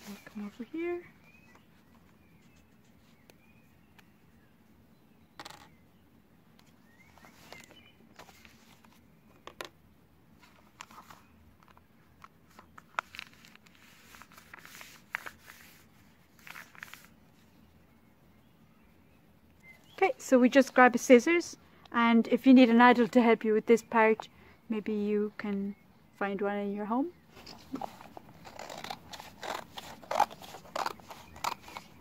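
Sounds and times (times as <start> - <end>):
newspaper rustling and crinkling: 7.1 - 9.1, 10.4 - 17.5, 27.4 - 32.0.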